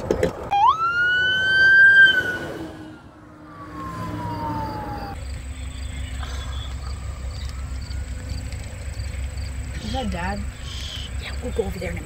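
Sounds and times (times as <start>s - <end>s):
fire engine siren winding down: 0.5s - 5.2s, 6.6s - 8.5s.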